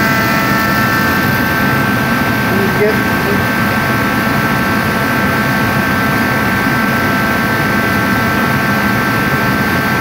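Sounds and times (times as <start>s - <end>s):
constant high whine: 0.0s - 10.0s
heater blower and burner roaring: 0.0s - 10.0s.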